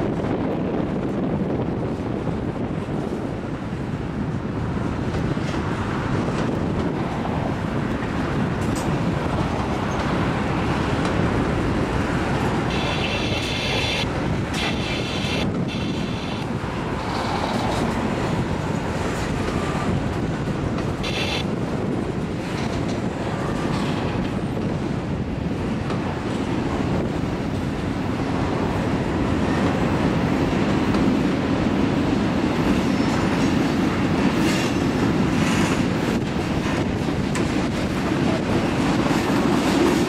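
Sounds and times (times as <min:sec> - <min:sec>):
train wheels rumbling on rails: 0:00.0 - 0:40.0
high wheel screeches: 0:12.7 - 0:14.0, 0:14.6 - 0:16.4.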